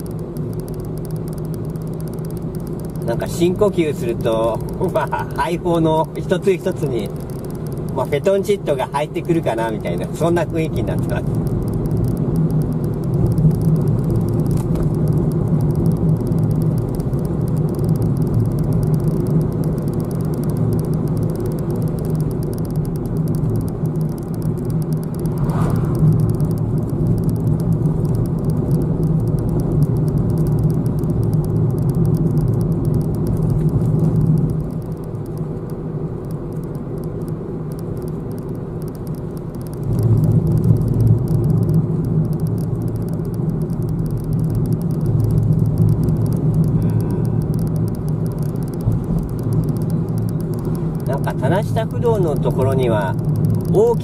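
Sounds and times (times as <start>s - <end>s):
car engine and tyre hum: 0.0s - 54.0s.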